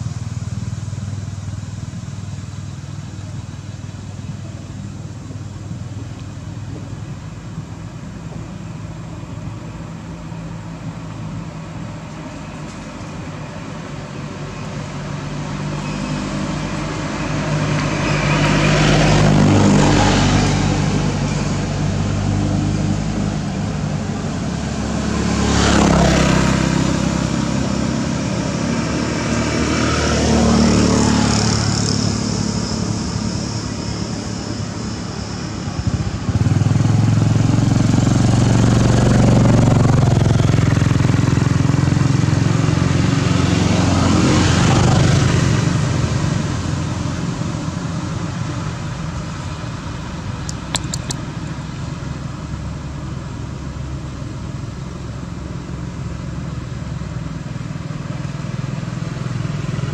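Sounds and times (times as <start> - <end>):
steady engine hum: 0.0 - 59.9
vehicles passing by: 0.0 - 59.9.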